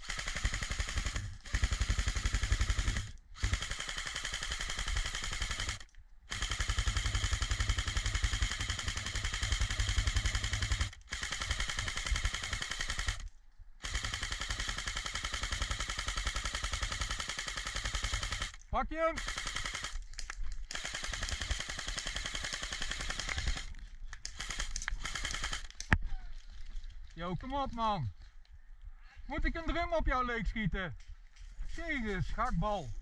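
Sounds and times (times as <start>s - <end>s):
airsoft gun firing full auto: 0.0s - 13.2s, 13.8s - 18.6s, 19.2s - 20.0s, 20.7s - 25.9s.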